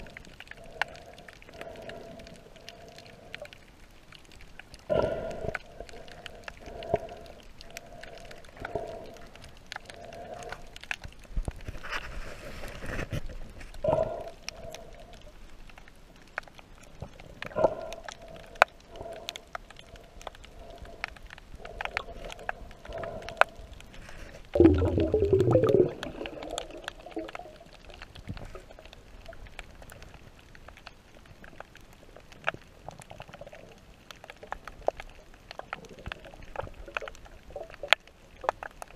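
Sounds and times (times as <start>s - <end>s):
underwater clicks and crackles: 0.0s - 38.9s
muffled tonal bursts: 24.6s - 26.5s.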